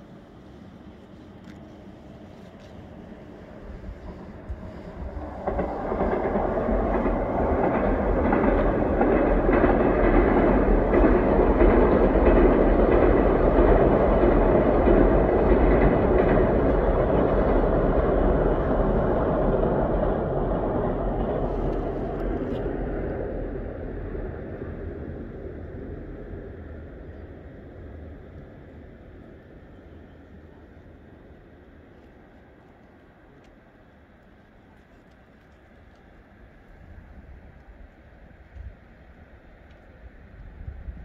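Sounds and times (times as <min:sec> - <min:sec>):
train crossing a bridge: 0:00.0 - 0:41.0.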